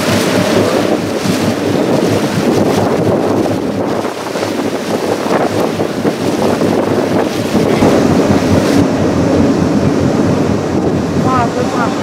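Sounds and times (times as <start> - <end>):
boat running through water: 0.0 - 12.0
wind rumble on microphone: 0.0 - 12.0.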